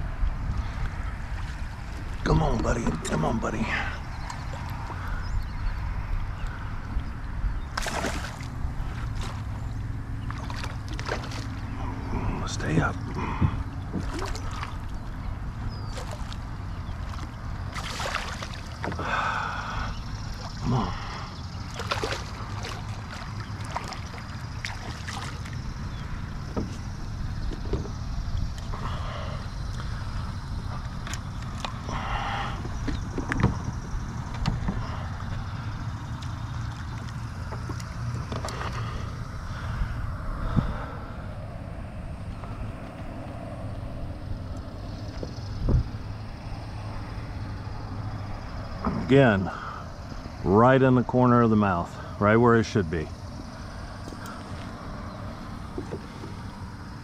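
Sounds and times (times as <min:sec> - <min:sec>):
wind rumbling on microphone: 0:00.0 - 0:51.2
fish thrashing and splashing: 0:07.7 - 0:12.0, 0:13.8 - 0:15.0, 0:15.8 - 0:25.9.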